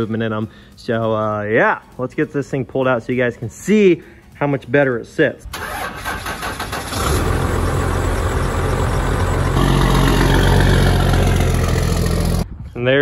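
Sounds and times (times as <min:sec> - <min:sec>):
pickup truck engine rumbling: 0:05.6 - 0:12.5.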